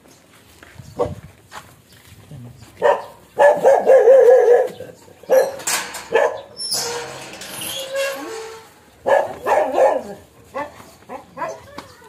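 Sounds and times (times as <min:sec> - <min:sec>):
dog barking: 0:02.8 - 0:06.4, 0:09.0 - 0:11.6.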